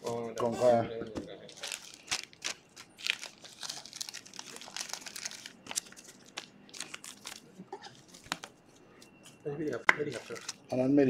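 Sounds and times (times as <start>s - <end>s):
foil wrapper crinkling: 1.4s - 8.5s, 10.0s - 10.8s.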